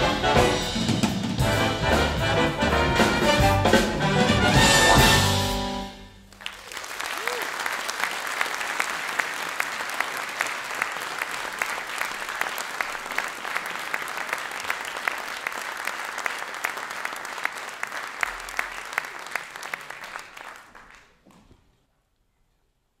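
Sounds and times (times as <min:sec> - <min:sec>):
audience applauding: 0:06.2 - 0:21.5.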